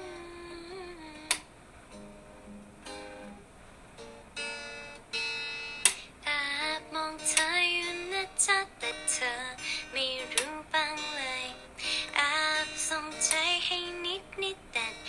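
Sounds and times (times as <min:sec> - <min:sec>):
young woman singing: 0:00.0 - 0:01.5, 0:06.2 - 0:15.0
acoustic guitar picked softly: 0:00.0 - 0:15.0.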